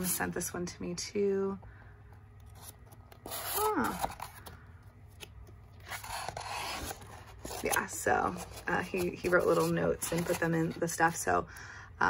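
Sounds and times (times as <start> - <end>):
book pages rustling: 2.4 - 11.2.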